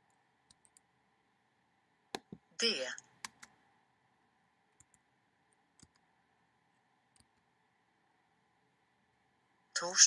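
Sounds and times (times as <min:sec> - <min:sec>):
computer keyboard keystroke: 0:03.2 - 0:03.6, 0:05.8 - 0:06.0.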